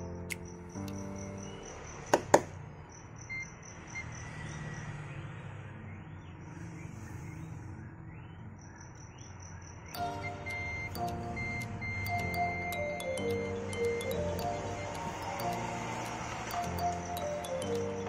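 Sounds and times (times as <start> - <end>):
insect chirping: 0.0 - 4.9, 8.2 - 18.0
sharp clicks: 10.0 - 18.0.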